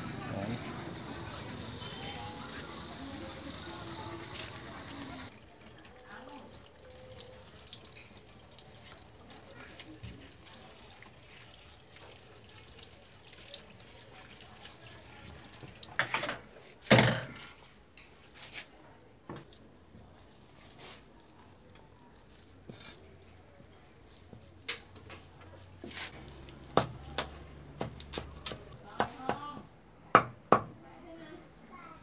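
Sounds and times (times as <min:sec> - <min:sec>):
crickets chirping: 0:00.0 - 0:32.0
tap water running: 0:03.3 - 0:16.4.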